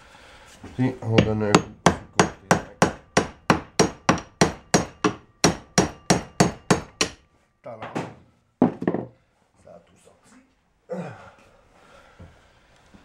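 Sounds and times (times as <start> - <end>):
hammer striking metal: 1.0 - 7.3.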